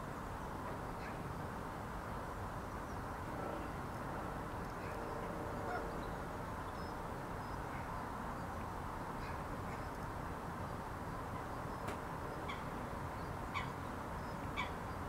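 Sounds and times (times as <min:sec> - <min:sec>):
waterbirds honking: 0:05.6 - 0:06.2.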